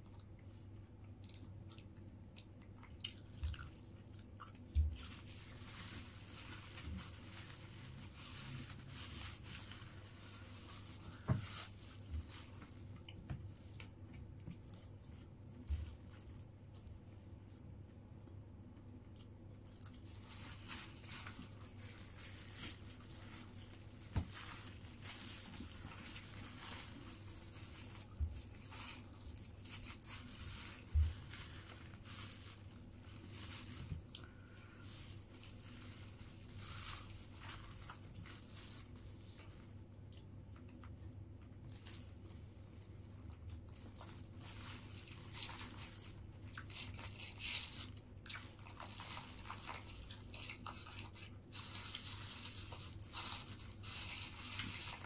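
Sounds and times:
chewing: 1.0 - 4.8
glove and paper rustling: 3.6 - 16.5, 19.6 - 39.8, 41.5 - 55.0
fried chicken tearing and crunching: 41.8 - 55.0.

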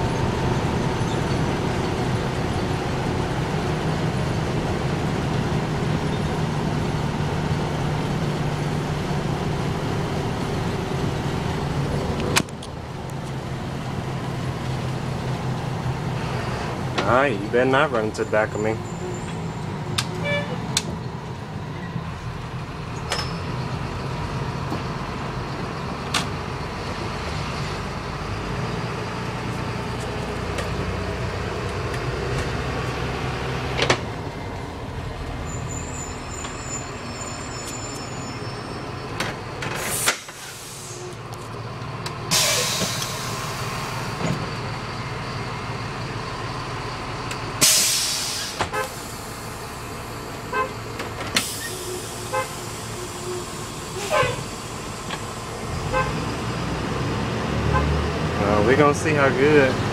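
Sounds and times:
bus engine rumbling: 0.0 - 59.9
air brake hisses: 39.8 - 41.2, 42.3 - 44.0, 47.6 - 49.5, 51.4 - 54.4.

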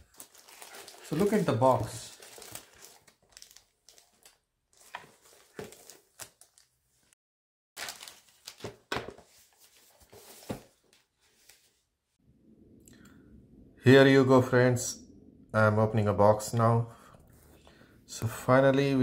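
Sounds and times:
plastic wrapping crinkling: 0.0 - 6.7, 7.8 - 9.0.

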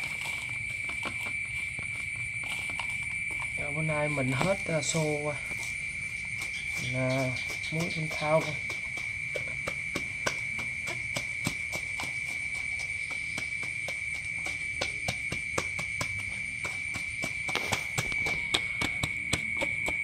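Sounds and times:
high-pitched insect trill: 0.0 - 20.0
small fish clicking in a basin: 6.5 - 20.0.

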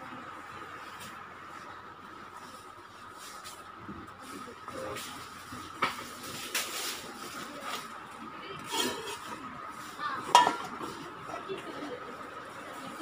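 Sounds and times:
metal cookware clinking: 8.7 - 9.2, 10.3 - 10.8.

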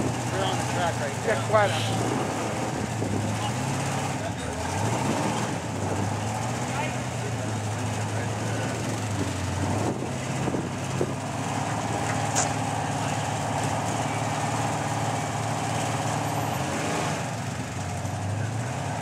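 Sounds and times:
truck engine running: 0.0 - 19.0
sharp click: 12.1 - 12.6.

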